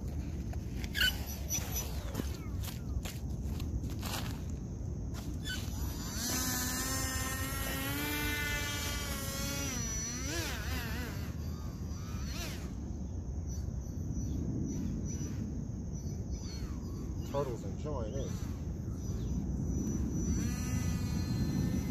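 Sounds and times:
electric motor whining: 5.4 - 12.9, 18.3 - 21.9
steady low rumble: 11.7 - 21.9.

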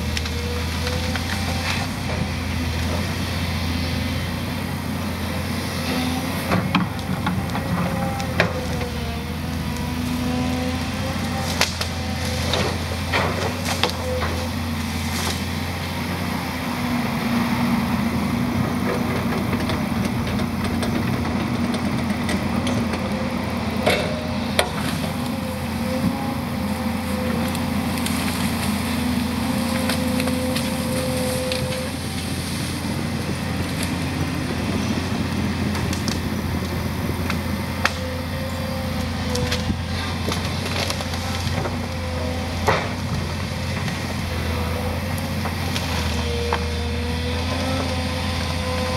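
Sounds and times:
excavator diesel engine running: 0.0 - 48.9
branches snapping and splintering: 6.5 - 16.0, 23.8 - 33.0, 35.5 - 48.9.

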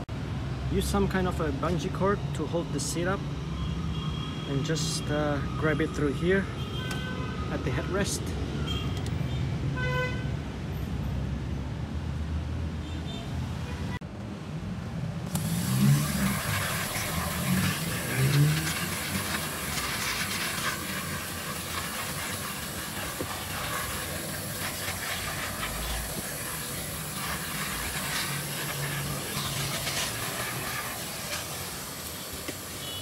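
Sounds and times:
vacuum cleaner on carpet: 15.3 - 33.0.

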